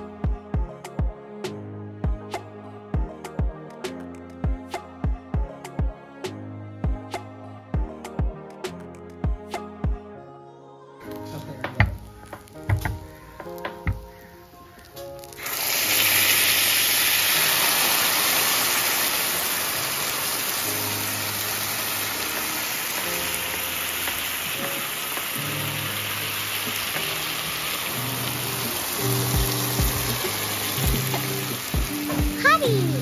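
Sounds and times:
sauce sizzling on hot plate: 11.1 - 33.0.

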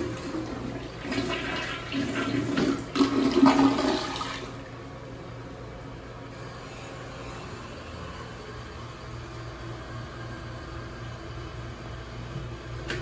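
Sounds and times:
toilet flushing water rushing: 0.0 - 4.9.

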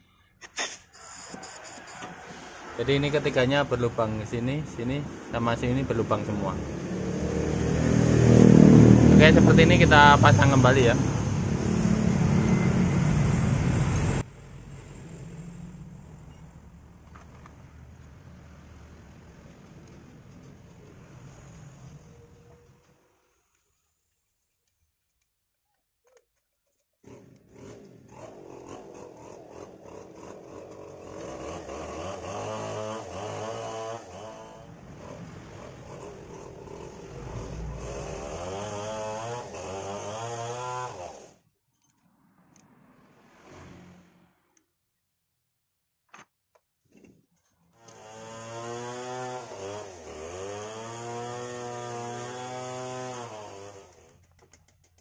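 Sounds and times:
motorcycle engine revving: 1.3 - 14.2, 27.0 - 41.4, 47.8 - 54.7.

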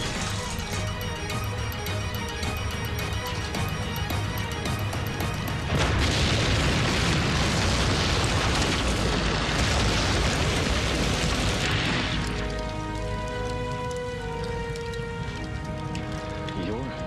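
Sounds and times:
rumbling fire noise: 0.0 - 17.0
bomb explosion: 5.7 - 12.5.

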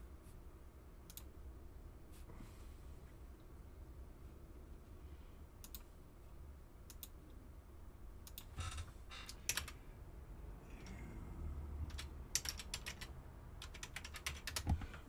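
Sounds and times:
keyboard keystrokes: 11.9 - 14.9.

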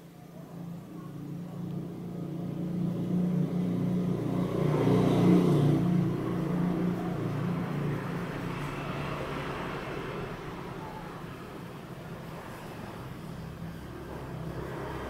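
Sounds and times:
vehicle engine passing by: 0.4 - 15.0.

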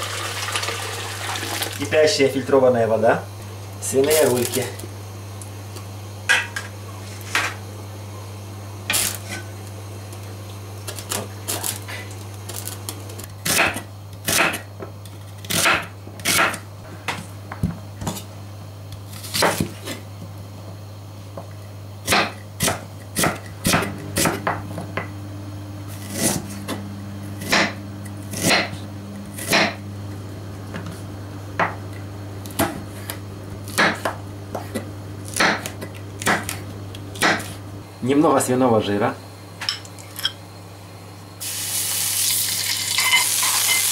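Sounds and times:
knife chopping on wooden board: 13.5 - 14.7, 15.5 - 16.6, 19.3 - 20.0, 22.0 - 25.1, 25.9 - 26.8, 27.4 - 29.8, 32.5 - 36.6, 37.2 - 37.6
low hum: 23.6 - 38.0.

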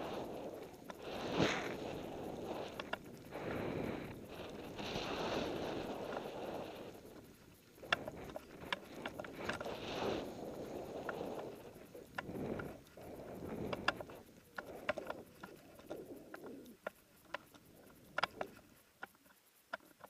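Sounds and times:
snowboard swishing through snow: 0.0 - 14.0
sharp clicks: 10.6 - 20.0.

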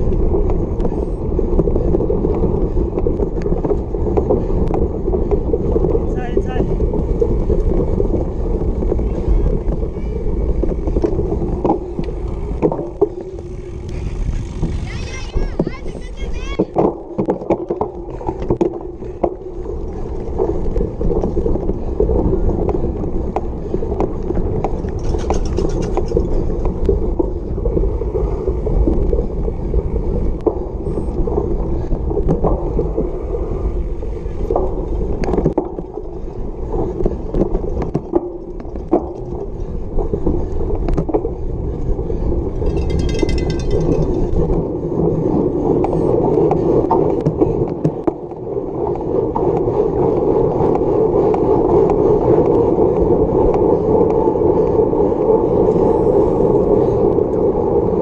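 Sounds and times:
bike rattles and knocks: 0.0 - 54.2
bike tyres rumbling over grass: 0.0 - 58.0
high ringing: 42.6 - 44.4.

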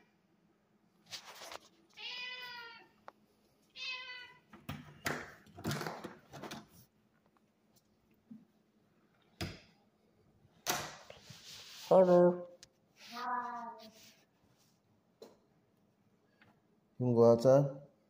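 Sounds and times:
shuffling and handling noise: 1.0 - 2.6, 11.0 - 14.9
cat meowing: 1.9 - 3.0, 3.7 - 4.5.

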